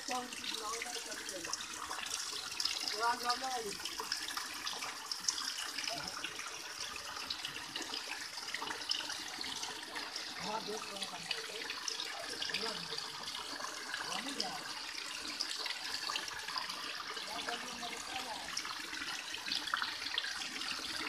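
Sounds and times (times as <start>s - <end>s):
water pouring and splashing: 0.0s - 21.0s.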